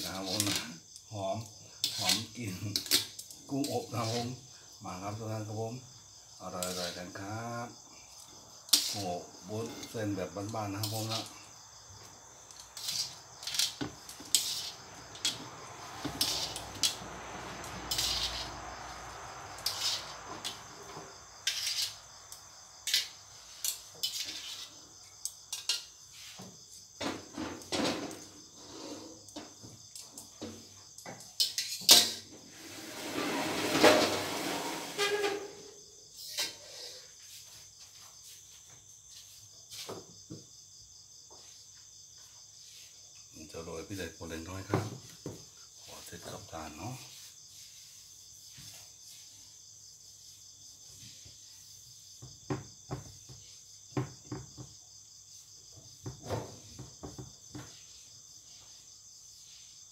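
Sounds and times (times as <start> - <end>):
utensils scraping and clinking on metal: 0.0 - 0.8, 1.8 - 4.4, 6.5 - 7.2, 8.1 - 11.4, 12.5 - 22.1, 22.8 - 24.8, 31.4 - 36.8
crickets chirping: 0.0 - 59.9.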